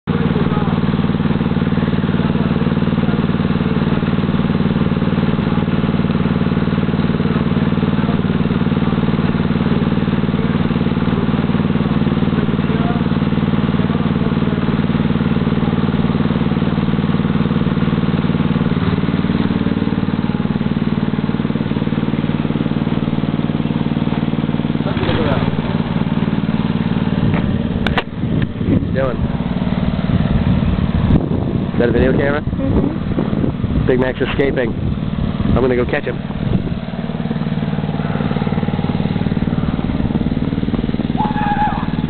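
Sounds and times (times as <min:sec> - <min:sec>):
lawnmower engine running: 0:00.0 - 0:42.0.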